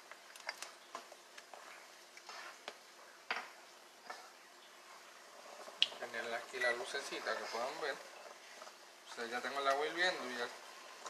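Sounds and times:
spoon stirring milk in saucepan: 0.0 - 11.0.

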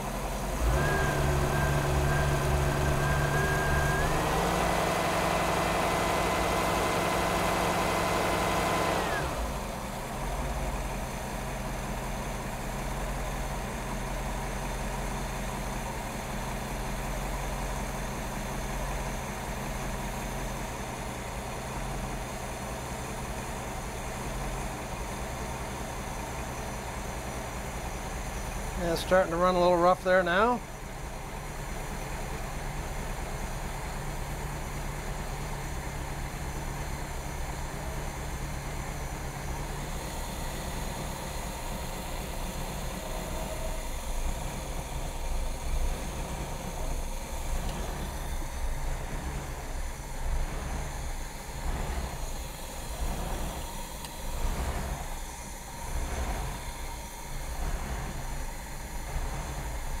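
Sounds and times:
boat engine running rough: 27.8 - 60.0.

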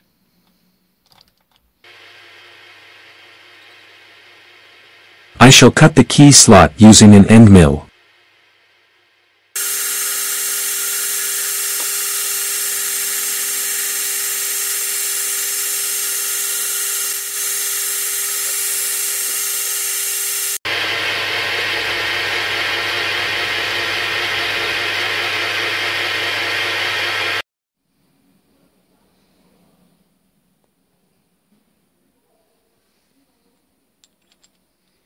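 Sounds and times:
milling machine whine: 1.9 - 5.5, 9.6 - 27.4.

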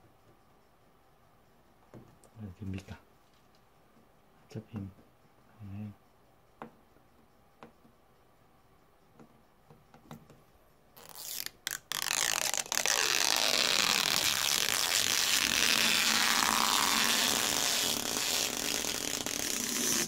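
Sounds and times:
plastic film peeling rip: 11.0 - 20.0.

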